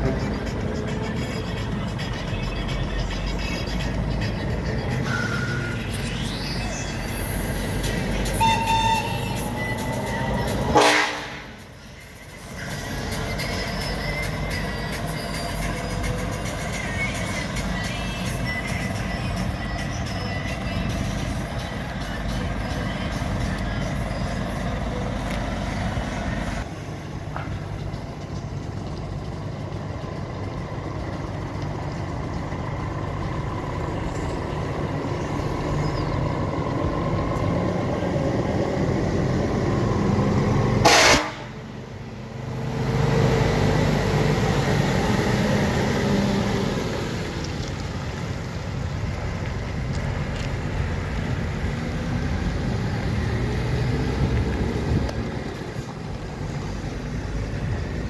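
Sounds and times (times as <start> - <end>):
truck diesel engine: 0.0 - 58.0
truck air horn blast: 8.4 - 9.6, 10.6 - 11.6, 40.8 - 41.6.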